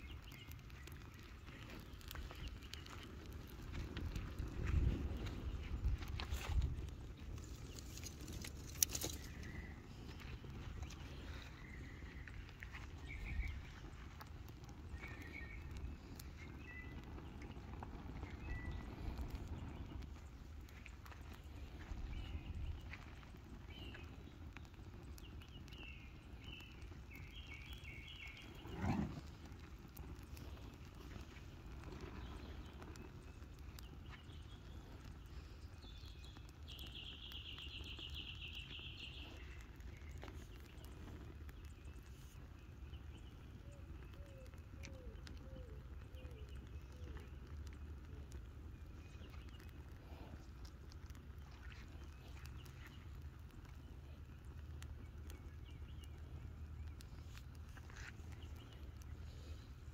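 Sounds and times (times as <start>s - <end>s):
low steady rumble: 0.0s - 59.9s
open fire crackling and popping: 0.0s - 59.9s
bird chirping: 30.0s - 47.8s, 51.4s - 59.7s.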